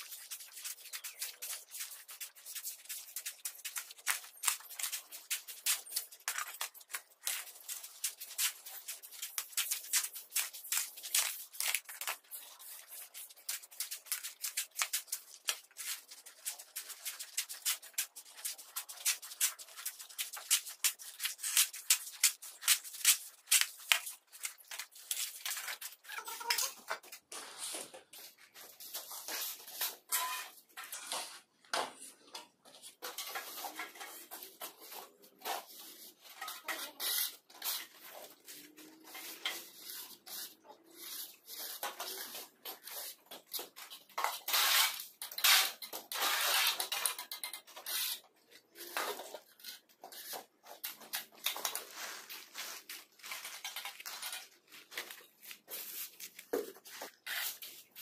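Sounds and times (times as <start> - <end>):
shovel and hoe scraping mortar: 28.6 - 31.5, 32.9 - 58.0.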